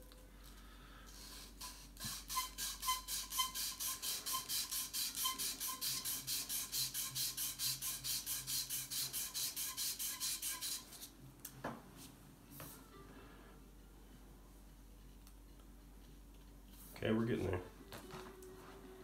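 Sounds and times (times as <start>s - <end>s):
sandpaper rubbing back and forth: 1.2s - 11.1s.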